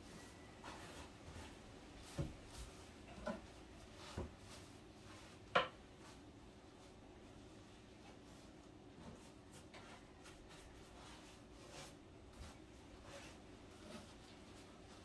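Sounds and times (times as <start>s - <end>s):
paintbrush brushing on wood: 8.1s - 15.0s.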